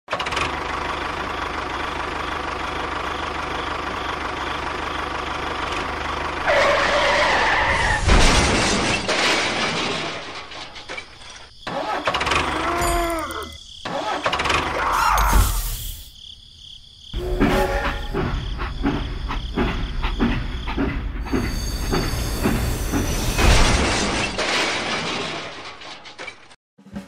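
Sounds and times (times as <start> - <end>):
tractor engine running: 0.1 - 7.7, 17.2 - 23.4.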